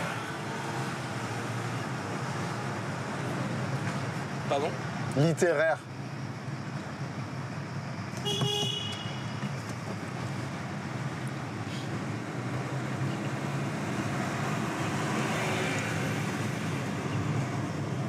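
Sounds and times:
car road and engine noise: 0.0s - 18.0s
car horn toot: 8.2s - 9.4s.

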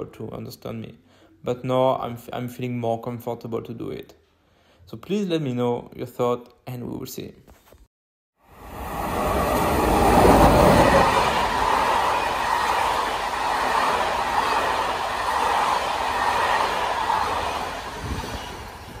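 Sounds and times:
train wheels rumbling on rail: 8.6s - 19.0s.

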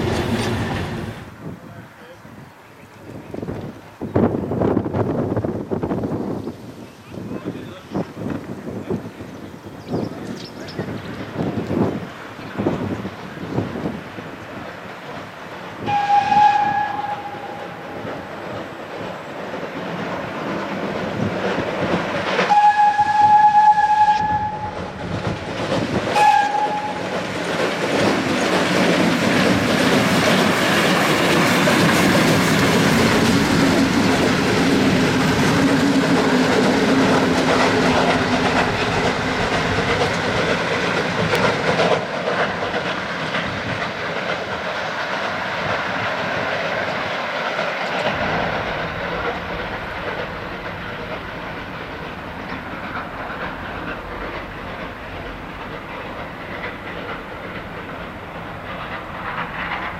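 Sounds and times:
train rumbling past on rails: 0.0s - 59.9s
steam locomotive whistle: 15.8s - 18.1s, 22.4s - 25.0s, 26.1s - 27.1s.

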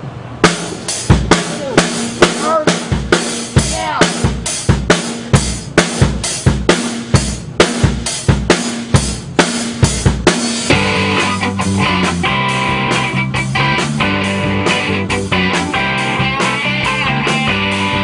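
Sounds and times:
bass guitar: 0.4s - 18.0s
rock drum kit beat: 0.4s - 18.0s
electric guitar: 10.7s - 18.0s.

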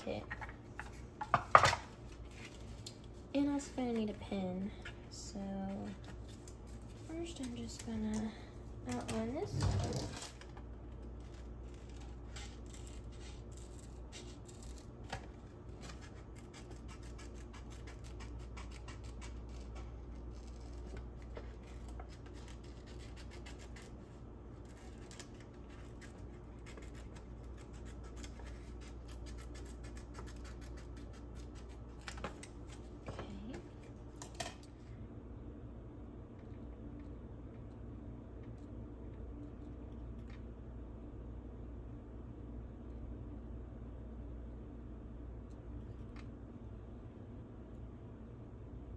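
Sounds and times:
low steady hum: 0.0s - 48.9s
scissors snipping paper: 11.2s - 32.8s.

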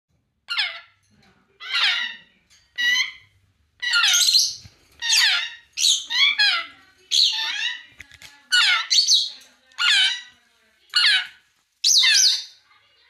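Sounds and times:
parrot squawks: 0.5s - 1.0s, 1.6s - 7.9s, 8.5s - 10.3s, 10.9s - 12.6s.

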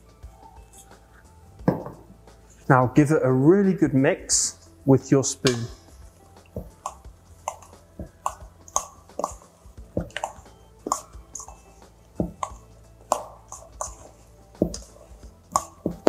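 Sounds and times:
spoon stirring pasta in metal bowl: 6.4s - 16.0s.

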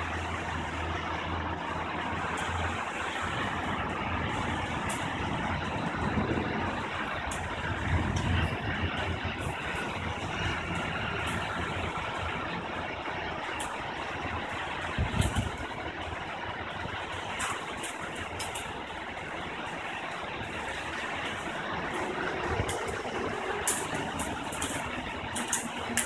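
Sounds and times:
rain hissing: 8.9s - 26.0s.

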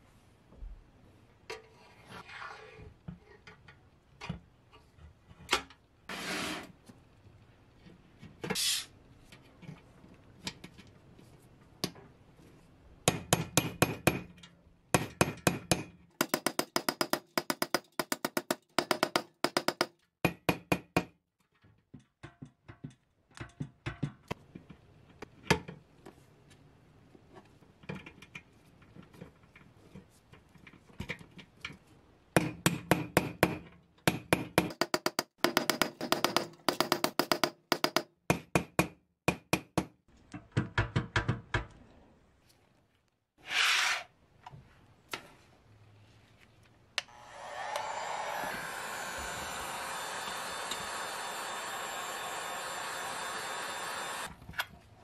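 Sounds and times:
small hammer tapping on metal: 15.0s - 21.1s, 32.4s - 40.0s.

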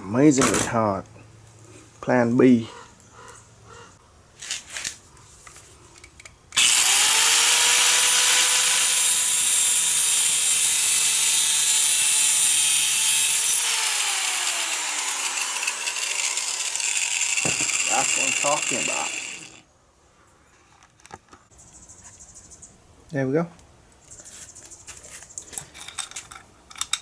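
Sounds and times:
angle grinder cutting steel: 6.6s - 19.6s.

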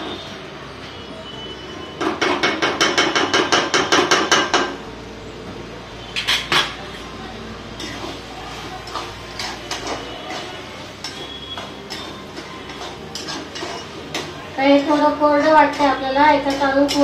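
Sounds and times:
wooden spatula knocking metal pan: 2.2s - 4.8s
spatula scraping pan: 6.0s - 7.0s, 7.7s - 17.0s.

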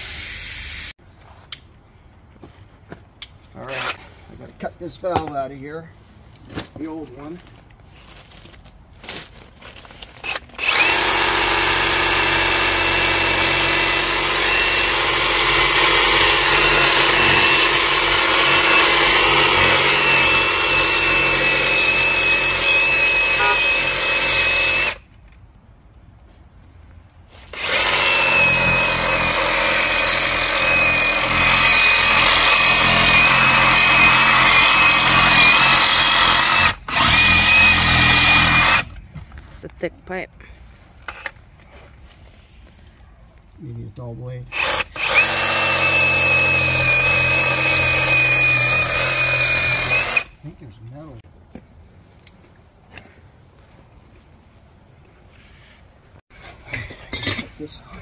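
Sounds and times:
oscillating saw cutting plastic pipe: 16.3s - 25.0s.

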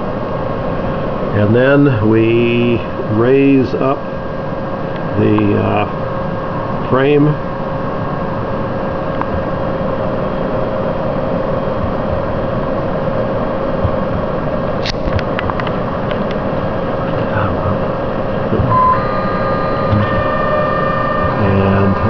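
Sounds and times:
machine drive whirring: 15.1s - 22.0s
short beep: 18.7s - 22.0s.

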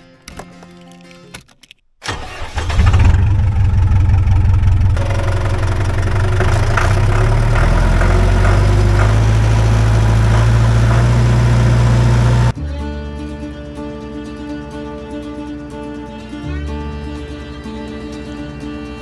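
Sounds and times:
tractor engine starting: 2.0s - 12.6s.

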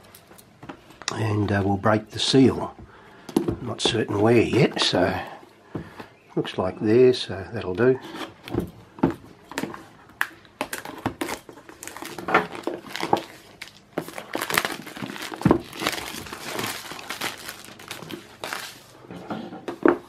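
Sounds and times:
plastic wrap crinkling: 9.4s - 19.0s.

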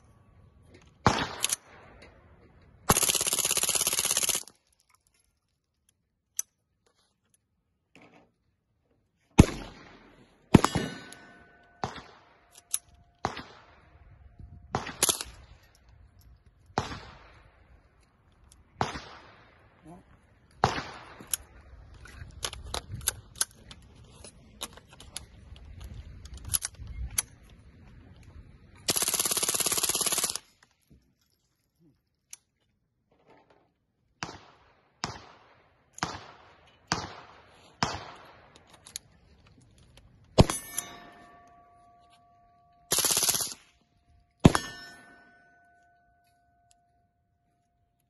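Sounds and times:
suppressed rifle shots: 9.4s - 12.5s
metallic ringing: 40.4s - 42.9s, 44.5s - 47.0s.

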